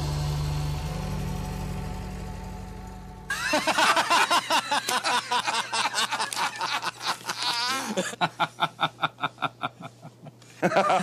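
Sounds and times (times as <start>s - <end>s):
held song chord: 0.0s - 3.8s
person laughing hard: 3.3s - 11.0s.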